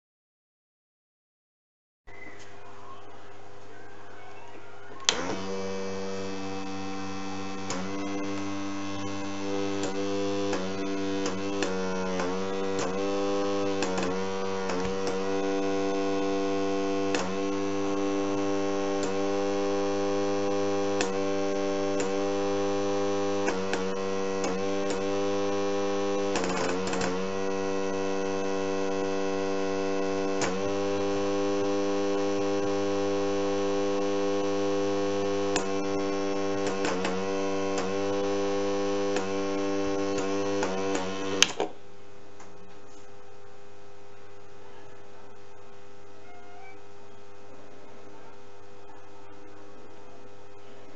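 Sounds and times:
scattered clicks: 5.0 - 41.7
electric air compressor humming: 5.1 - 41.7
switch click: 35.3 - 38.3, 39.0 - 41.7.

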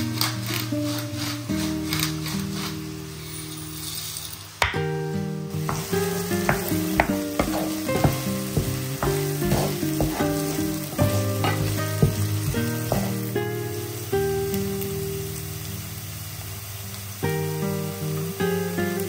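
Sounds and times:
onion sizzling in oil: 0.0 - 19.0
wooden spoon scraping a pan: 0.2 - 3.8, 5.6 - 13.4.

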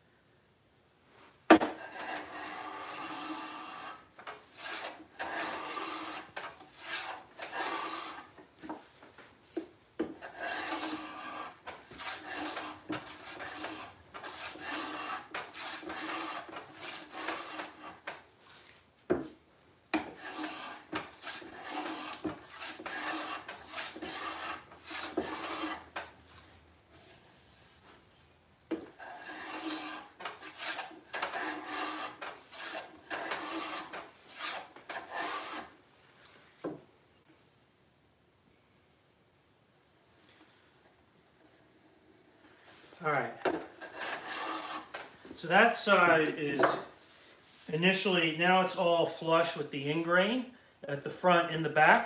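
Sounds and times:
hand plane shaving wood: 1.6 - 8.4, 10.2 - 18.2, 20.0 - 27.5, 28.9 - 35.8, 43.6 - 47.8.

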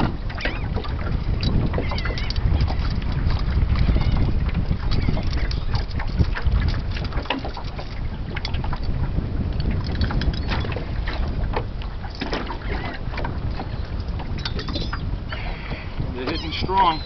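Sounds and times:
water slapping against hull: 0.0 - 17.0
wind buffeting microphone: 0.0 - 17.0
gulls calling: 0.3 - 0.8, 1.8 - 2.9, 12.4 - 13.1, 13.7 - 17.0.

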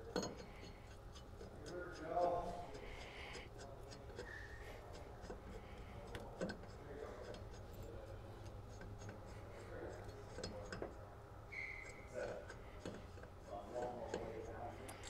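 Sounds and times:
low steady hum: 0.0 - 15.0
metal clicks and rubbing: 0.0 - 15.0.

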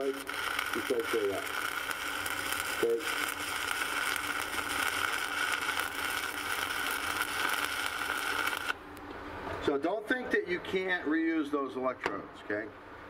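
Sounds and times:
welding arc crackling hiss: 0.0 - 8.8.

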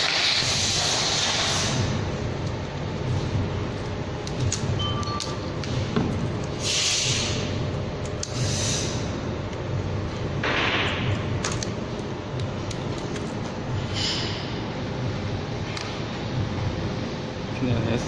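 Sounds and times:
steady low hum: 0.0 - 18.0
short scraping hisses: 6.6 - 7.5, 8.3 - 9.0.

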